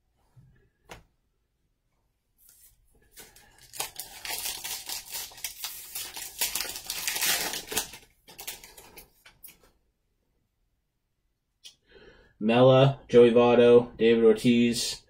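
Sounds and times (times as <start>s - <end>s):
wrapper tearing and crinkling: 3.1s - 9.2s.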